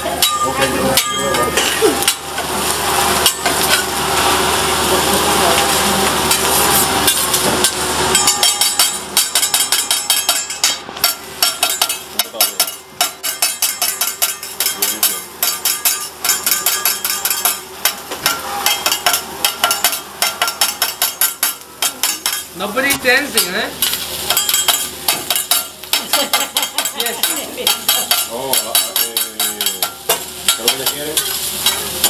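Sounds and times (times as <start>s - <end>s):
food sizzling on hot plate: 0.0s - 32.0s
metal spatulas clacking on griddle: 7.1s - 22.5s, 23.4s - 32.0s.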